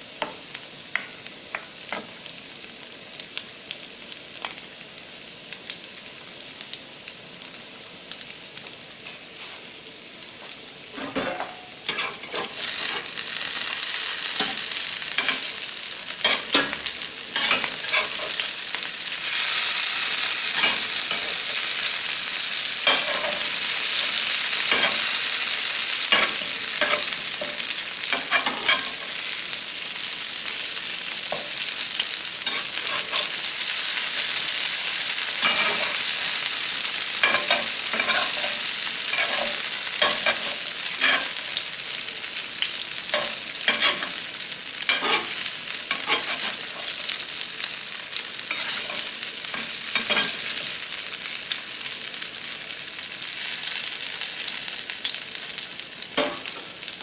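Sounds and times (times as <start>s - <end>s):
potatoes and eggs sizzling: 0.0s - 57.0s
metal spatula scraping pans: 11.0s - 13.1s, 16.2s - 18.5s, 20.5s - 21.8s, 32.4s - 33.4s, 35.4s - 36.1s, 37.2s - 41.4s, 43.2s - 44.2s, 44.8s - 47.0s, 48.5s - 50.6s.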